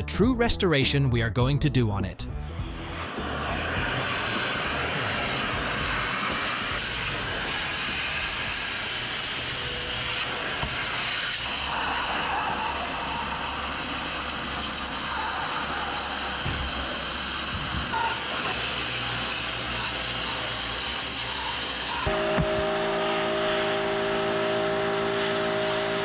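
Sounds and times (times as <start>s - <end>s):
machine rushing hiss: 3.1s - 22.1s.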